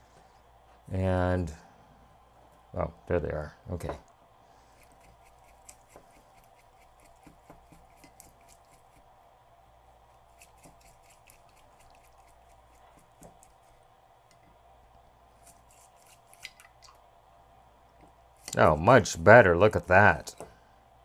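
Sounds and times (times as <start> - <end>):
low steady hum: 0.0 - 21.0
brush scrubbing in liquid: 10.3 - 13.5, 15.4 - 16.7.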